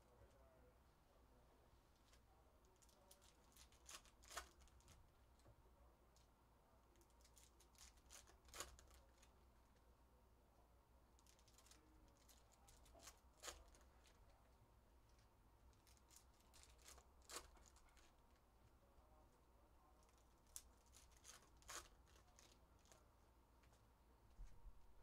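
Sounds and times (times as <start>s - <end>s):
foil wrappers crinkling and tearing: 2.8s - 5.0s, 7.2s - 9.3s, 11.2s - 14.3s, 15.7s - 18.2s, 20.1s - 23.0s.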